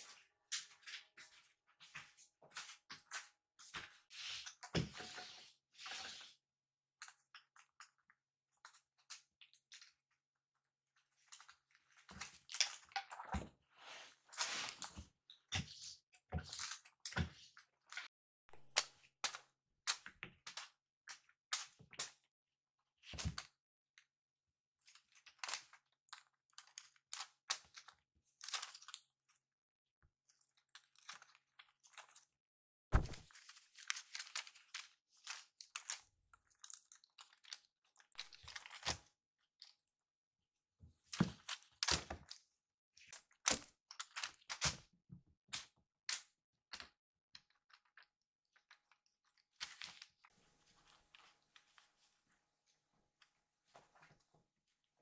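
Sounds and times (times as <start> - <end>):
thump: 32.9 - 33.2.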